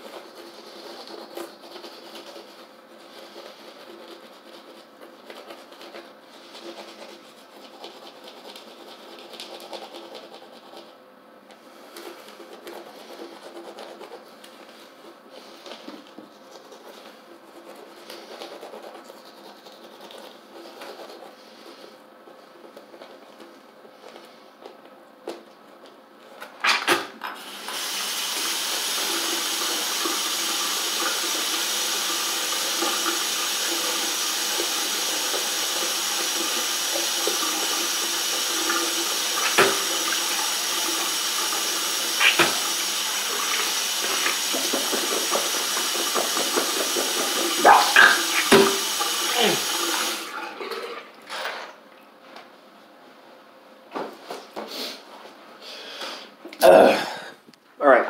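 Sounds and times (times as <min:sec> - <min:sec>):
tap water running into a sink: 0:27.4 - 0:50.4.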